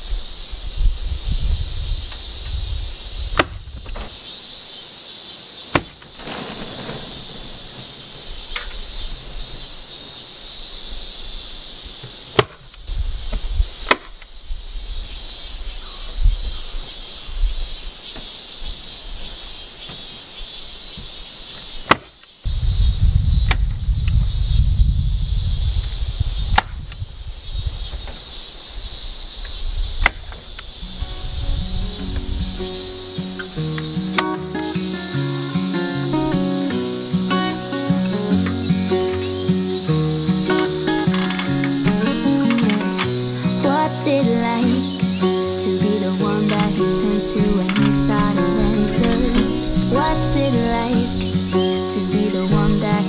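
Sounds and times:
insects droning: 0.0 - 53.0
sharp clicks of fastening lath: 40.9 - 43.2.

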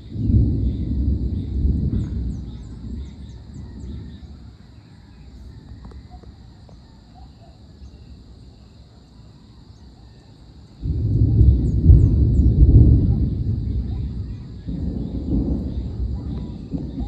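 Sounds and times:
distant thunder rumbling: 0.0 - 6.8, 10.7 - 17.0
insects droning: 0.0 - 17.0
bird chirps: 11.4 - 17.0.

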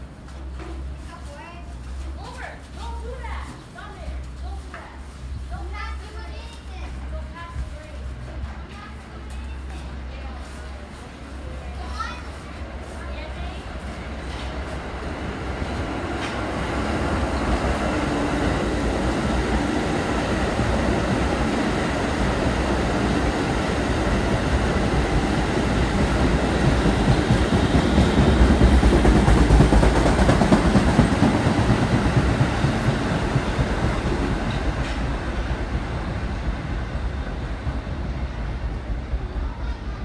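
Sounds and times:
subway train passing: 0.0 - 40.0.

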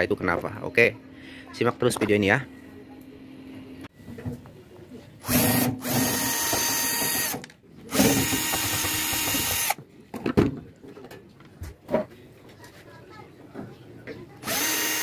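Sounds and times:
cordless drill motor: 5.2 - 9.8, 14.4 - 15.0.

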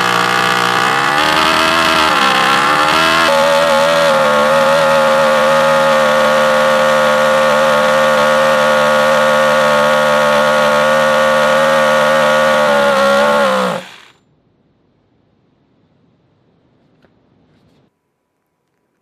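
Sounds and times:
small gas engine running high: 0.0 - 14.2.

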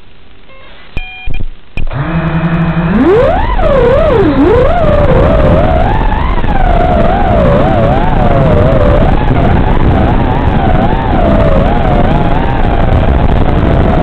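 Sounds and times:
short electronic beeps: 0.5 - 1.9
quadcopter motors whining: 1.9 - 14.0.

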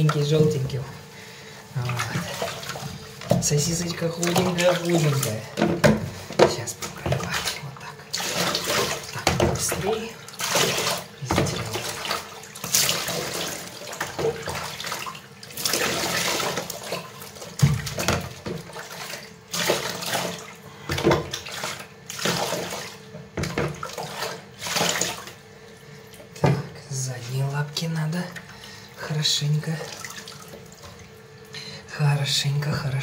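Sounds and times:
water splashing in plastic basin: 1.7 - 25.4, 29.6 - 31.1.

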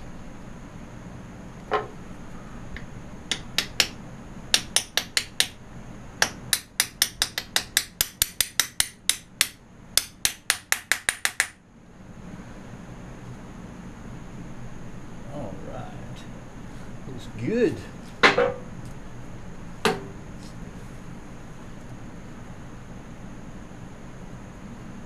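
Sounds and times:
small hammer tapping: 2.8 - 5.6, 6.2 - 11.6.

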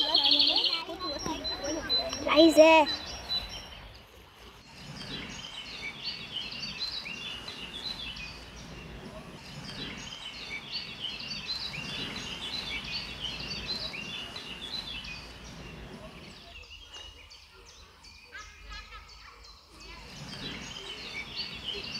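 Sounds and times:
songbirds chirping and trilling: 0.0 - 21.9.

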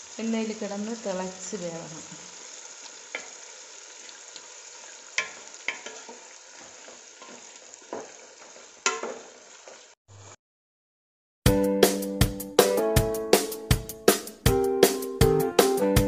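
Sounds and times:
oil sizzling in a pan: 0.0 - 10.4
wooden spatula clicking on pan: 5.2 - 6.0.

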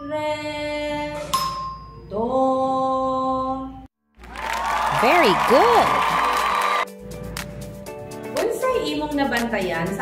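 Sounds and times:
cartoon children cheering: 4.3 - 6.9
soft background music: 6.9 - 10.0.

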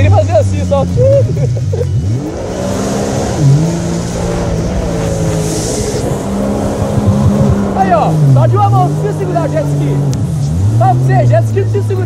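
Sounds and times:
jet ski engine running: 0.0 - 12.0
water spray rushing: 2.8 - 8.3.

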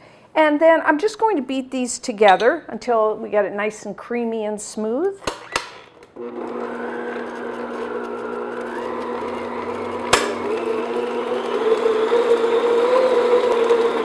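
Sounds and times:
stand mixer motor running: 6.2 - 14.0.

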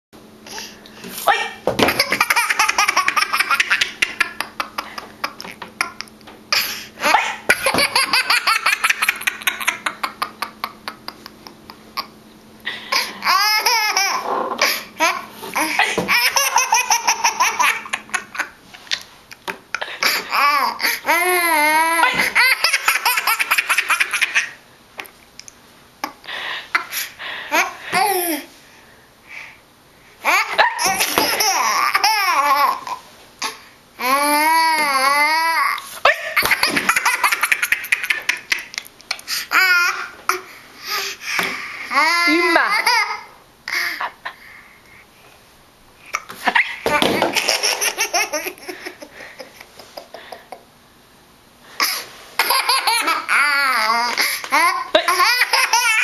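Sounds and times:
toddler belly laughing: 1.4 - 6.1, 7.0 - 12.2, 12.9 - 24.6, 30.2 - 33.0, 34.0 - 40.5, 41.4 - 44.4, 46.2 - 50.6, 51.8 - 56.0.

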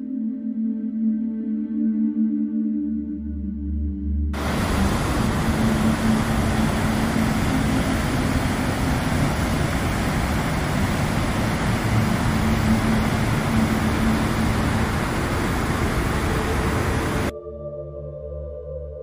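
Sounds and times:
waterfall and rapids roaring: 4.4 - 17.3.

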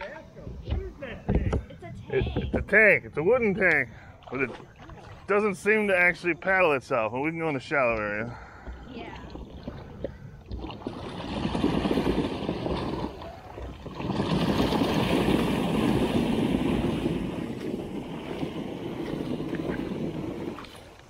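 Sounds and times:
water splashing and churning: 2.2 - 21.0.

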